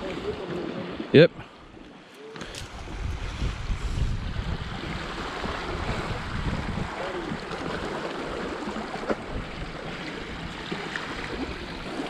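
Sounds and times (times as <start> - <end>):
small waves lapping on rocks: 1.8 - 12.0
wind rumbling on microphone: 2.4 - 12.0.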